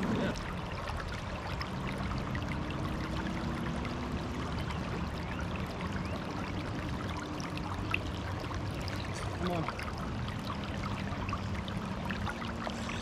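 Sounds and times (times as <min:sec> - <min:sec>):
water drips: 0:00.0 - 0:13.0
water lapping against boat hull: 0:00.0 - 0:13.0.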